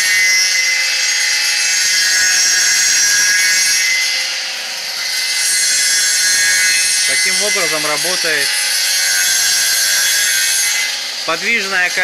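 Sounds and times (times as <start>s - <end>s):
cutting disc whining and hissing: 6.2s - 12.0s.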